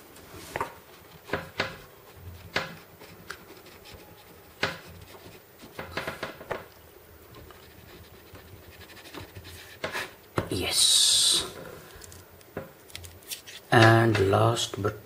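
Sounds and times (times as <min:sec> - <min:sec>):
ballpoint pen scratching on paper: 0:00.9 - 0:06.1, 0:07.4 - 0:10.2.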